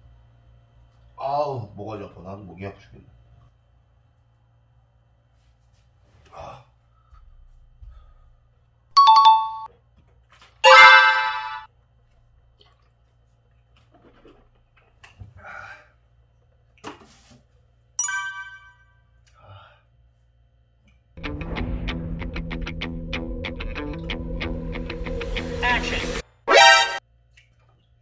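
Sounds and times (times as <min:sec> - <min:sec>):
bright chime: 0:09.0 - 0:09.7, 0:10.6 - 0:11.7, 0:18.0 - 0:18.8
two-note ding-dong chime: 0:09.0 - 0:09.7, 0:10.6 - 0:11.7, 0:18.0 - 0:18.8
bright musical sting: 0:10.6 - 0:11.7.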